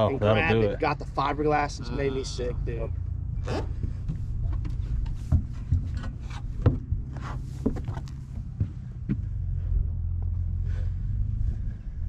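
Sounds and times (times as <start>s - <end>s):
steady low rumble: 0.0s - 12.0s
footsteps thumping on boat deck: 6.6s - 9.4s.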